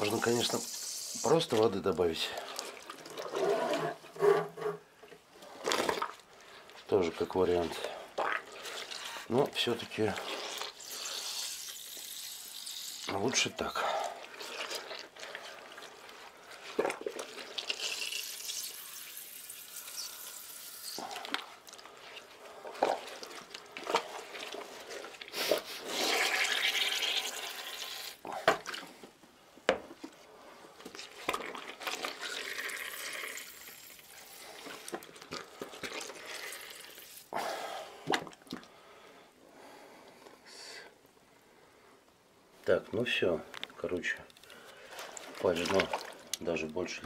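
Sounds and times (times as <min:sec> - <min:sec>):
liquid splashing: 0:00.0 - 0:03.4, 0:07.7 - 0:28.9, 0:31.0 - 0:37.4, 0:44.4 - 0:47.0
wet squelching and sloshing: 0:00.0 - 0:04.1, 0:05.4 - 0:29.0, 0:30.3 - 0:39.1, 0:44.0 - 0:47.0.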